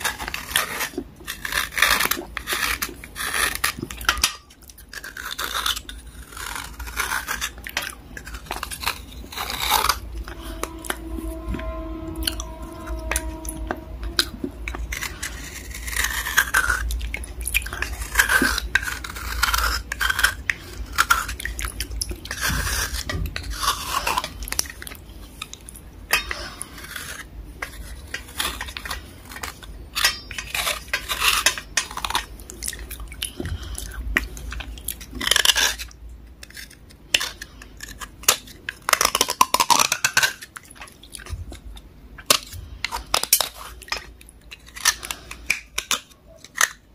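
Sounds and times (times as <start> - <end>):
metal needle scraping block: 8.4 - 16.8, 26.1 - 32.1.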